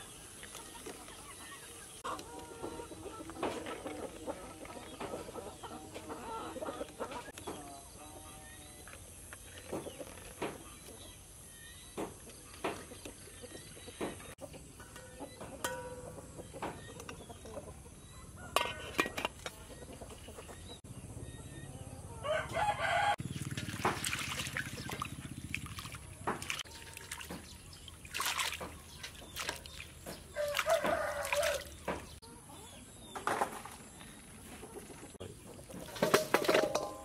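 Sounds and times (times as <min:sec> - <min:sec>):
rooster crowing: 0:22.0 - 0:23.2, 0:30.4 - 0:31.7
water splashing in metal basin: 0:23.2 - 0:32.2, 0:35.6 - 0:37.0.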